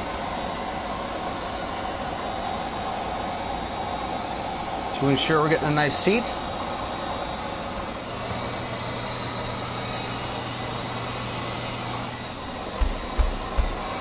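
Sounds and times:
heat gun fan whir: 0.0s - 14.0s
low thumps: 12.7s - 14.0s.

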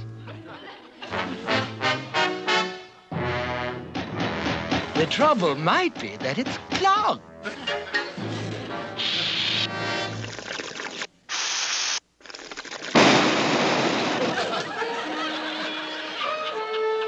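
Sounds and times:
hissing blasts of air: 9.0s - 9.7s, 11.3s - 12.0s
water bursting out spraying: 9.0s - 14.3s.

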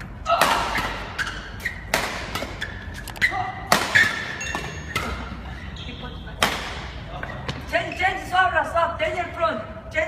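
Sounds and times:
rackets striking shuttlecocks: 0.0s - 5.4s, 6.4s - 7.7s
court shoes squeaking: 0.0s - 8.4s.

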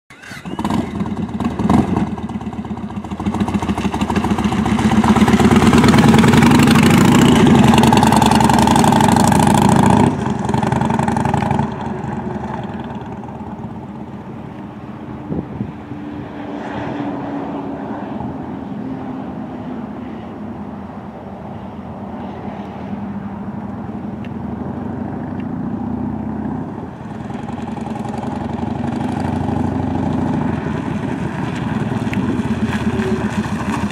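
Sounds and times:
motorcycle engine running: 0.4s - 15.7s, 24.6s - 33.9s.

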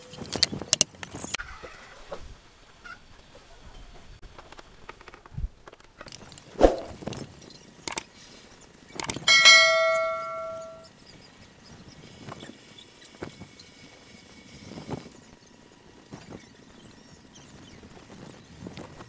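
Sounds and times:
metal object clanging: 9.0s - 10.8s.

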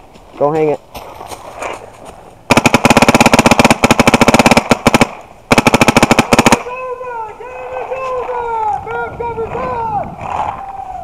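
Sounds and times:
paintball marker firing rapidly: 2.5s - 6.7s.

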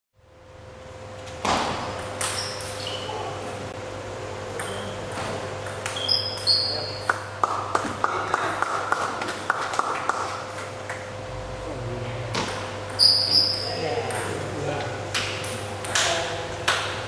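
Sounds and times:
steady hum: 0.2s - 17.0s
short high squeaks: 2.2s - 3.4s, 5.8s - 7.1s, 12.9s - 13.8s.

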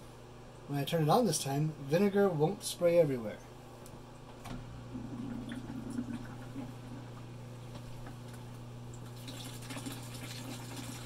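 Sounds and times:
pump humming: 4.4s - 11.0s
liquid trickling and splashing: 8.9s - 11.0s.

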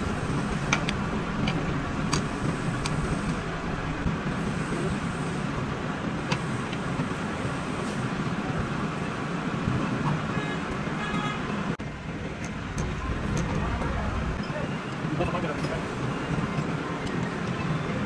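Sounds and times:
low rumbling noise: 0.0s - 9.8s, 11.7s - 15.2s.

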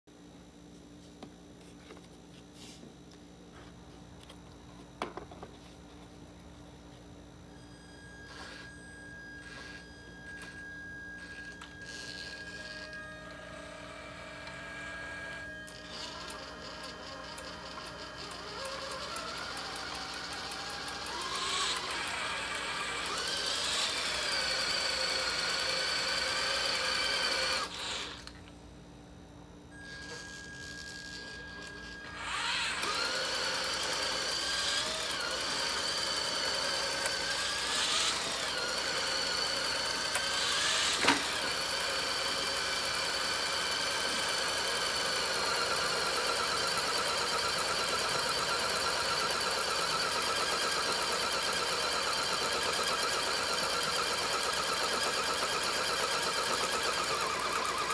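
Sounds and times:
electric motors whining: 7.4s - 28.6s, 29.7s - 57.9s.

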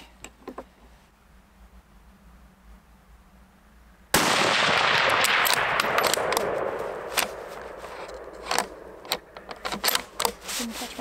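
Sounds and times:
rifle shot: 4.1s - 9.4s
rifle bolt metallic clicks: 5.0s - 10.4s.

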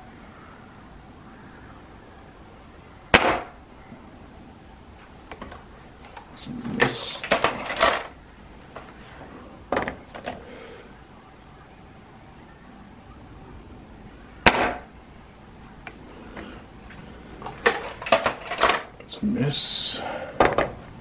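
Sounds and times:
air rifle shot crack: 3.1s - 3.6s, 14.4s - 14.9s.

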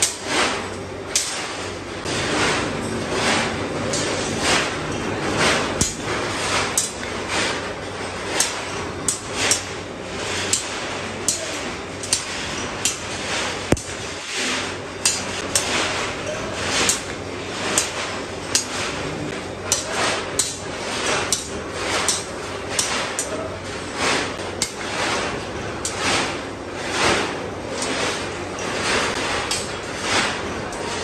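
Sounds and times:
hammer striking steel on anvil: 5.7s - 6.2s.

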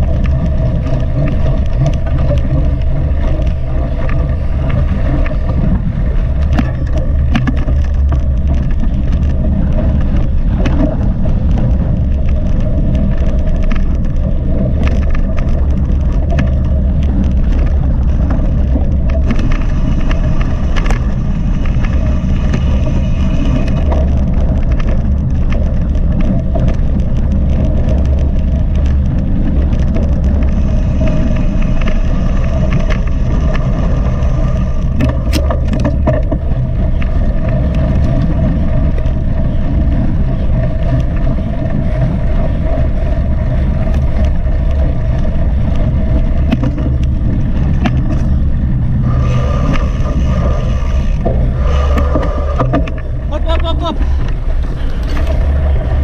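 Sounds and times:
bike clicks and rattles: 0.0s - 56.0s
wind and rolling rumble: 0.0s - 56.0s.

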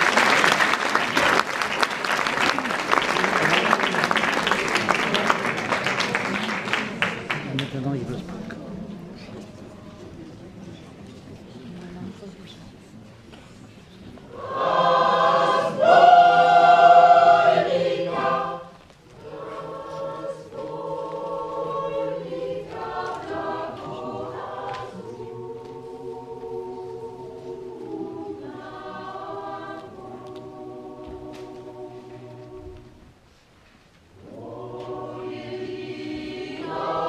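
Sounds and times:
mixed choir singing: 14.2s - 33.2s, 34.2s - 37.0s.

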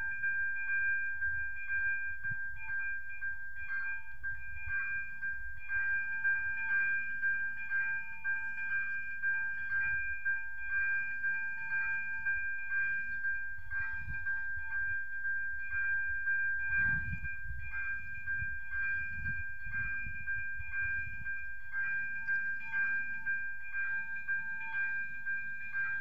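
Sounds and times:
wind rumble on microphone: 13.6s - 15.0s, 16.6s - 22.9s.

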